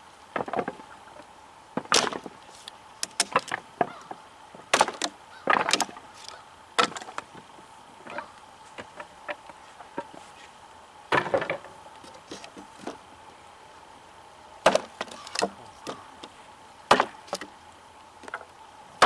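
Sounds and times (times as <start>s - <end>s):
knife chopping into wood: 14.7s - 16.0s.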